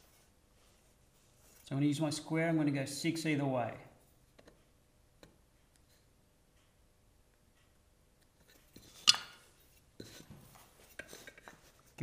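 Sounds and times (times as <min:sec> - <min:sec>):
shuffling and handling sounds: 0:00.0 - 0:02.0, 0:08.4 - 0:12.0.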